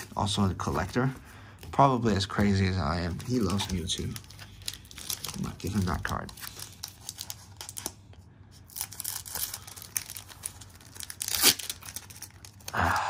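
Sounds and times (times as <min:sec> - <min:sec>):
foil wrapper tearing and crinkling: 0:03.1 - 0:08.0, 0:08.6 - 0:13.0.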